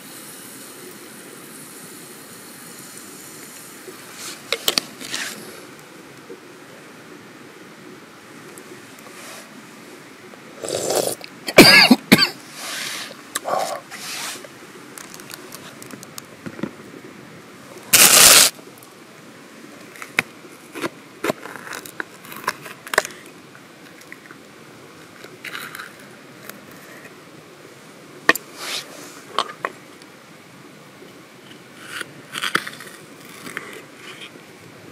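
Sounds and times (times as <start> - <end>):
hands rustling peppers: 17.9 - 18.5.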